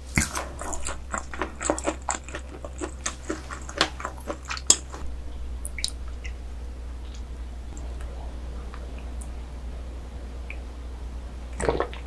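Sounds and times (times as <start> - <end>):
wet chewing clicks and smacks: 0.2 - 5.0, 5.6 - 6.4.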